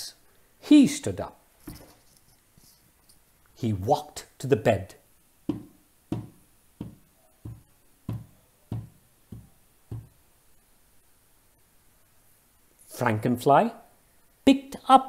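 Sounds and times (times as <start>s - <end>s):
heavy stomping footsteps: 5.5s - 10.2s.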